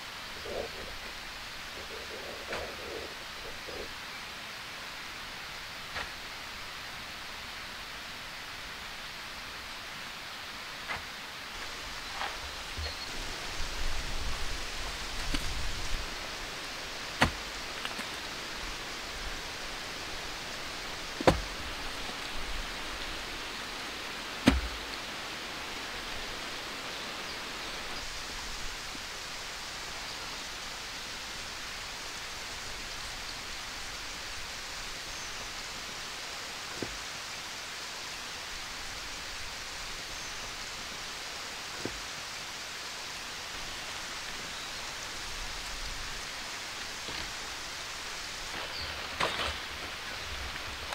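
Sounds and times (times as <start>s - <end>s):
steady outdoor hiss: 0.0s - 50.9s
wooden poles knocking: 21.2s - 21.7s, 24.4s - 24.8s.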